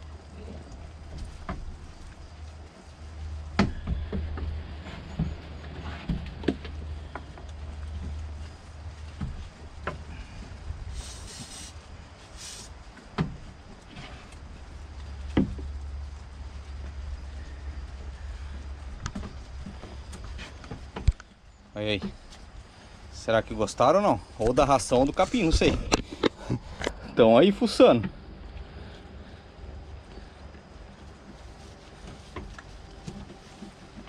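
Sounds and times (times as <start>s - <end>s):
steady low rumble: 0.0s - 34.0s
short hisses: 10.9s - 12.8s.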